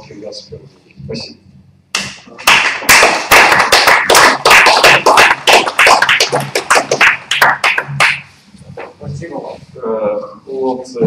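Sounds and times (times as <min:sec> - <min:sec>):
audience applauding: 0:02.4 - 0:08.3.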